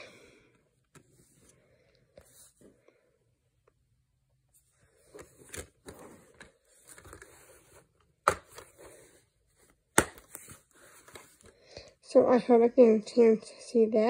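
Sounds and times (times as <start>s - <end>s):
plastic case rustling and scraping: 4.6s - 11.6s
plastic case snapping shut: 10.0s - 10.4s.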